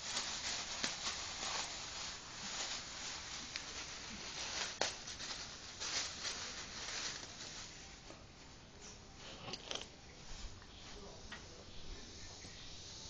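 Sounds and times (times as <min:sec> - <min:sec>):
plastic bag crinkling: 0:00.0 - 0:08.0, 0:09.2 - 0:09.9.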